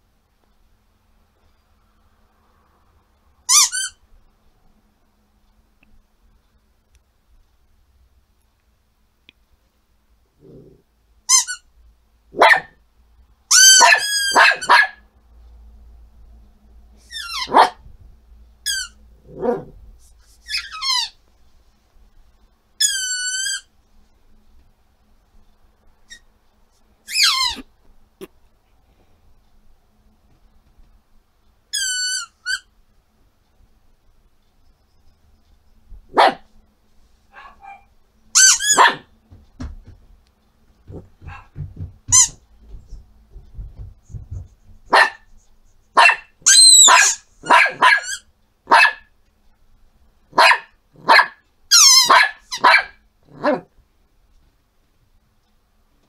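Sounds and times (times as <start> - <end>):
squeaky rubber ball squeaks: 3.5 - 4.0, 11.3 - 11.7, 17.1 - 17.6, 18.6 - 19.0, 20.4 - 21.2, 22.8 - 23.7, 27.1 - 27.7, 31.7 - 32.7, 38.4 - 38.9, 42.1 - 42.4, 46.4 - 47.2, 51.7 - 52.2
small dog barking: 12.3 - 12.8, 13.6 - 15.1, 17.4 - 17.8, 19.3 - 19.8, 36.1 - 36.5, 37.3 - 37.9, 38.6 - 39.1, 40.9 - 41.6, 44.9 - 45.3, 46.0 - 49.1, 50.3 - 53.7.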